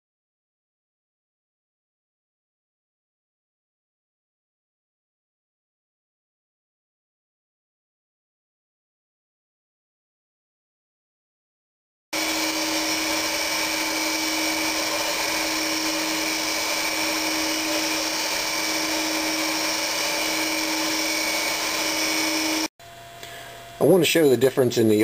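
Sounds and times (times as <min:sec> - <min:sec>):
centrifuge whining: 0:12.2 - 0:23.3.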